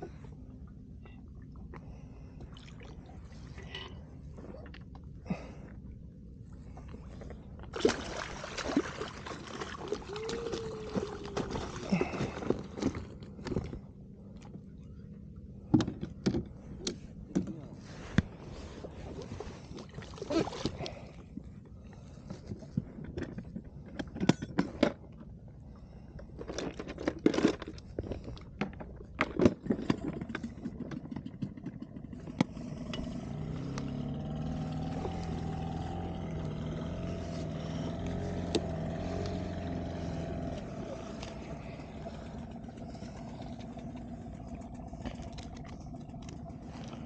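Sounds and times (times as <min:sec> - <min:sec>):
small outboard motor running: 0:00.0 - 0:47.0
fishing gear knocking and scraping: 0:26.2 - 0:35.9.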